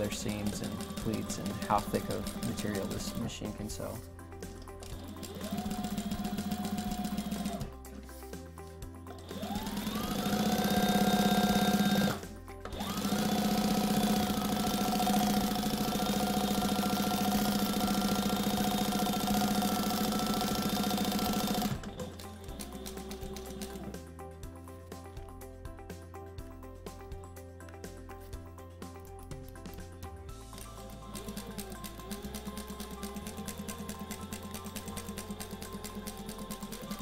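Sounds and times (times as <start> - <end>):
sewing machine motor whining: 0.0 - 3.3, 4.9 - 7.7, 9.1 - 23.9, 30.5 - 37.0.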